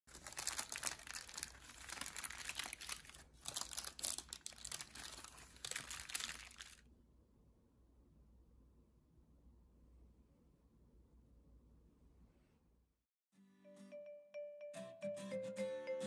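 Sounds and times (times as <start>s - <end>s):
baking paper crinkling: 0.1s - 6.8s.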